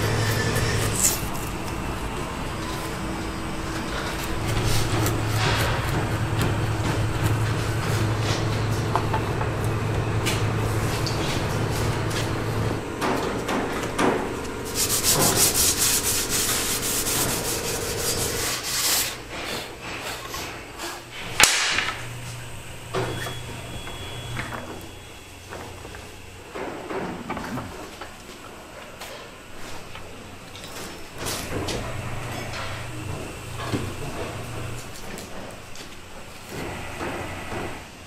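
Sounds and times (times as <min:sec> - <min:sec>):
blade scraping wood shavings: 0:00.0 - 0:01.8, 0:03.7 - 0:08.6, 0:14.6 - 0:19.6
steady low hum: 0:00.0 - 0:38.0
fast rubbing strokes on wood: 0:14.6 - 0:21.0.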